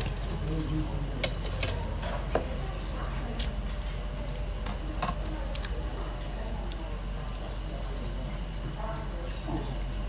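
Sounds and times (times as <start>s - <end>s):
utensils clinking against dishes: 0.0s - 6.4s
low room hum: 0.0s - 10.0s.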